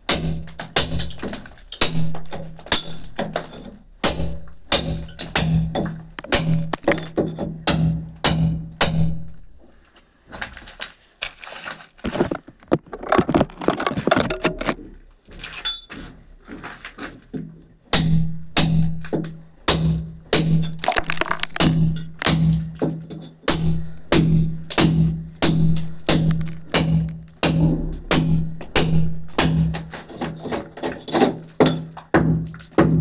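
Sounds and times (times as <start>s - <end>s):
hammer striking chisel into brick: 4.0s - 9.1s, 23.5s - 29.9s.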